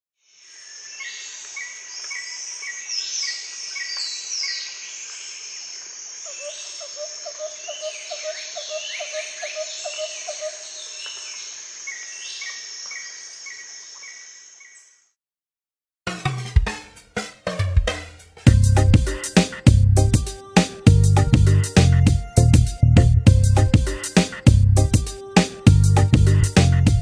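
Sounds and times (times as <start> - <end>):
birdsong: 6.2 - 15.1.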